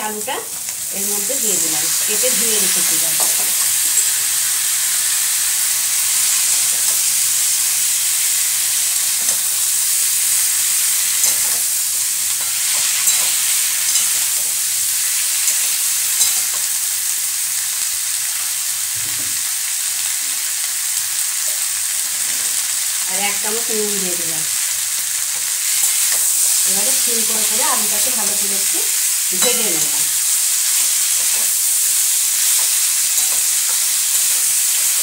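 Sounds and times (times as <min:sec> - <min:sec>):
potatoes sizzling in hot oil: 0:00.0 - 0:35.0
metal spatula scraping and tapping: 0:32.4 - 0:34.6.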